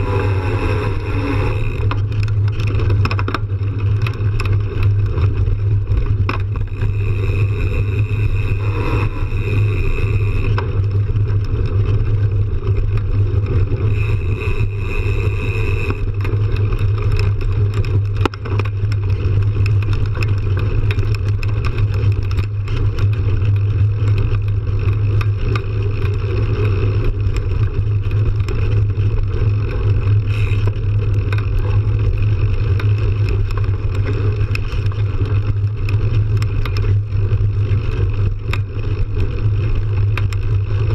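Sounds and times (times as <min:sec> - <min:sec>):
high buzzing tone: 0:00.0 - 0:02.0, 0:06.5 - 0:10.7, 0:13.9 - 0:16.2
knobby tyres on dirt trail: 0:00.0 - 0:40.9.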